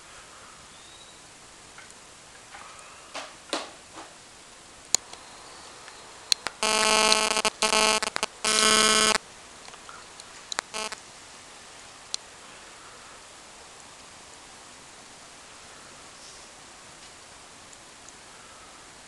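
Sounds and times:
faint clicks: 4.9 - 11.0
loud electronic buzz: 6.4 - 9.2, 10.6 - 11.0.

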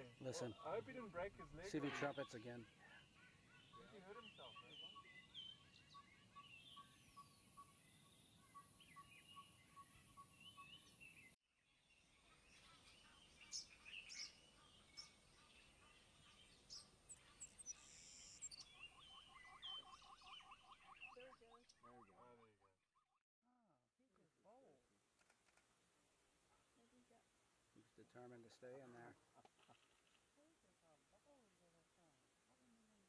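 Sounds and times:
bird chirps and calls: 0.0 - 11.3, 12.3 - 22.4
repeated rising bird calls: 0.0 - 11.3, 12.6 - 22.6.

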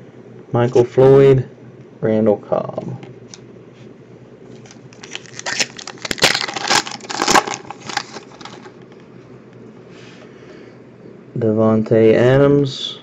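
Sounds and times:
wrapper crinkling and tearing: 4.5 - 8.8.

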